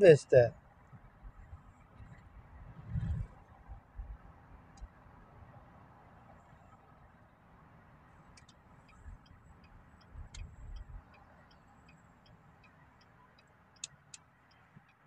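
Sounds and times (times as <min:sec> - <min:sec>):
low road rumble in car: 0:00.0 - 0:15.0
low thumps: 0:02.8 - 0:03.3
turn signal clicking: 0:04.7 - 0:05.0, 0:08.2 - 0:15.0.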